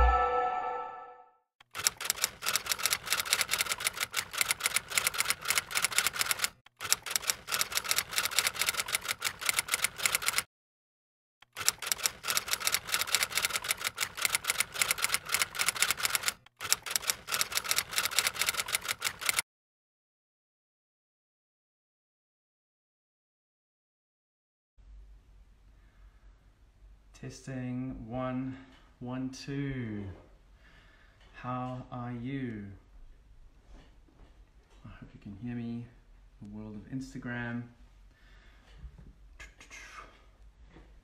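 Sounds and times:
rapid keyboard typing: 1.6 - 10.5, 11.4 - 19.4.

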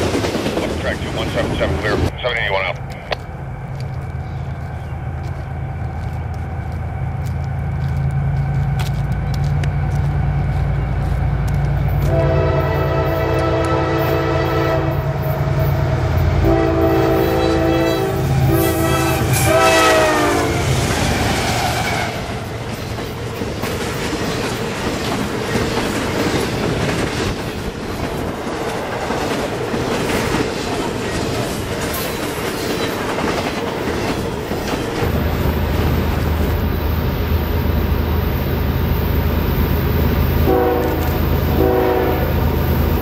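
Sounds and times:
train wheels clattering on rail: 0.0 - 2.1, 2.7 - 14.2, 20.8 - 36.9
locomotive air horn blasts: 12.0 - 15.3, 16.4 - 20.7, 40.4 - 42.4.

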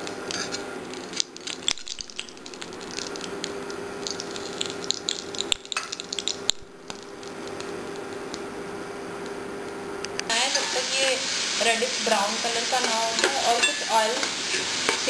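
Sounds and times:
crackling pops: 0.0 - 8.6
spices sizzling in hot oil: 0.0 - 9.6, 10.3 - 15.0
steady low hum: 0.0 - 10.3
spatula scraping a pan: 12.8 - 15.0.

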